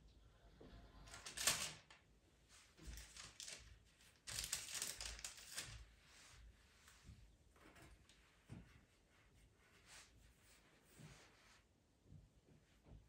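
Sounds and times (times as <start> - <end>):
paper crinkling and rustling: 1.1 - 6.4.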